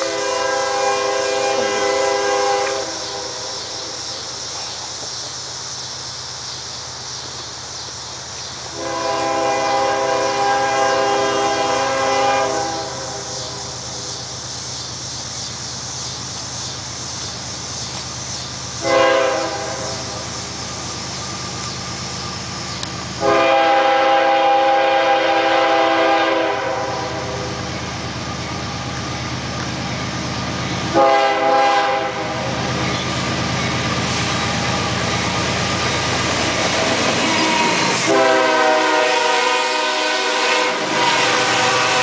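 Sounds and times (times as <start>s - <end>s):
locomotive air horn blasts: 0.0s - 3.5s, 8.7s - 13.4s, 18.8s - 20.2s, 23.2s - 27.6s, 30.9s - 32.5s, 37.2s - 42.0s
low locomotive rumble: 0.0s - 42.0s.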